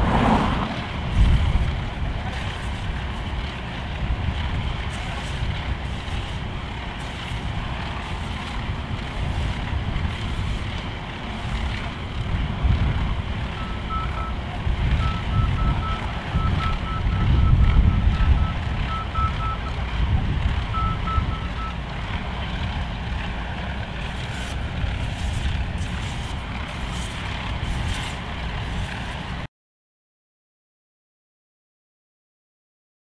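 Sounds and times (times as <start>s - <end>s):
wind buffeting microphone: 0.0s - 29.5s
vehicle backup alarm beeping: 13.4s - 19.8s, 20.7s - 21.8s.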